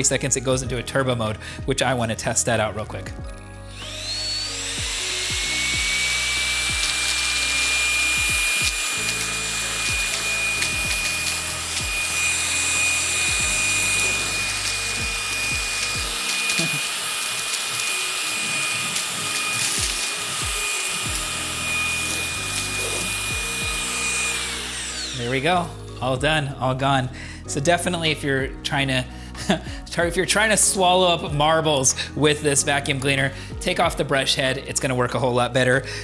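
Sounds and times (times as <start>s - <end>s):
vacuum motor whine: 3.7s - 25.8s.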